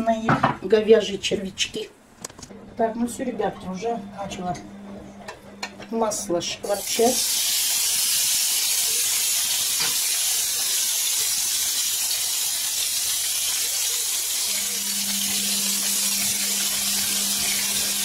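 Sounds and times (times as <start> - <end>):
low steady hum: 0.2 - 6.8
beef sizzling in hot oil: 6.7 - 18.0.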